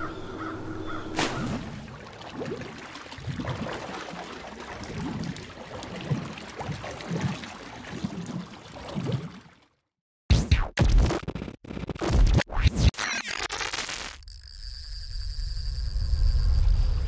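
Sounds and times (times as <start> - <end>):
underwater water noise: 0.4 - 9.7.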